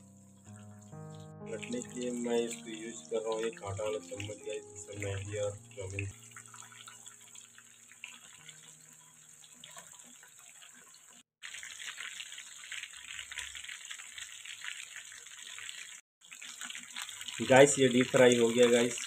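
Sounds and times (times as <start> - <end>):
chicken deep-frying in oil: 5.8 - 19.0.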